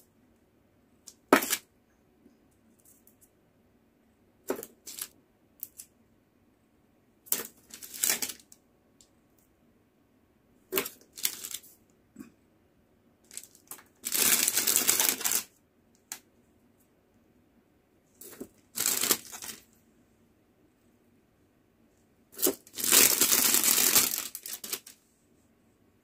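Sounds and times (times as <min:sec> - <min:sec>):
plastic packet crinkling: 0:07.3 - 0:08.5, 0:10.8 - 0:11.7, 0:13.3 - 0:15.5, 0:18.7 - 0:19.6, 0:22.4 - 0:25.0.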